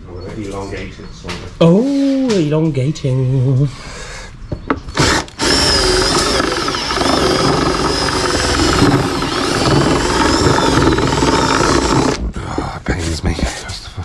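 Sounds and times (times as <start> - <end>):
cordless drill running: 4.9 - 12.2.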